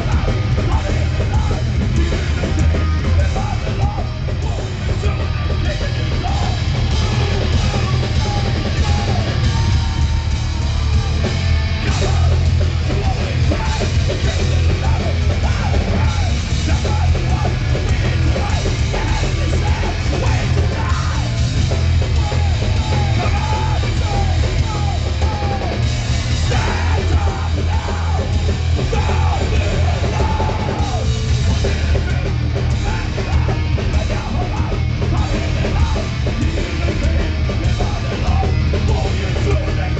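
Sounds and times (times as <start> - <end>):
bass: 0.0 - 39.9
distorted electric guitar: 0.0 - 39.9
drums: 0.0 - 39.9
shouted vocals: 0.0 - 39.9.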